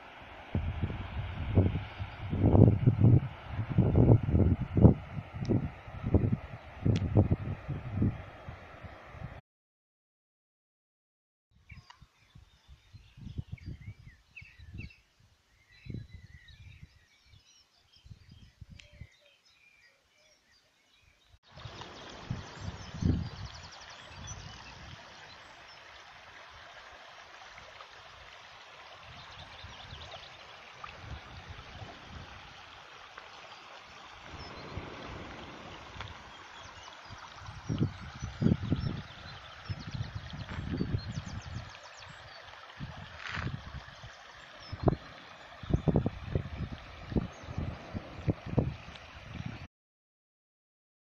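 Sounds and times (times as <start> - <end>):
wind gusting on microphone: 0.5 - 9.4, 12.4 - 15.0, 21.6 - 25.0, 30.9 - 32.7, 34.1 - 42.2, 42.8 - 49.7
small birds chirping: 33.5 - 42.5
steady rushing noise: 34.3 - 36.9.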